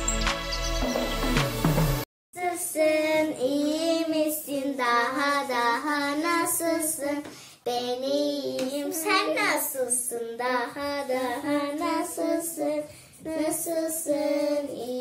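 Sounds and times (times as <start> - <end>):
child singing: 2.4 - 15.0.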